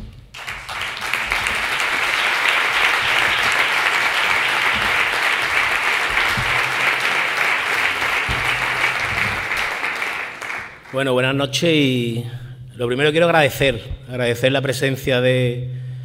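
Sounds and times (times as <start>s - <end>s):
audience applauding: 0.4s - 11.1s.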